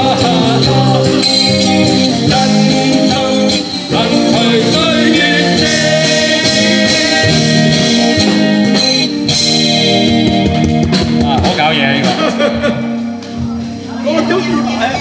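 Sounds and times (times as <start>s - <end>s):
person singing: 0.0s - 8.8s
guitar: 0.0s - 15.0s
live band playing pop song: 0.0s - 15.0s.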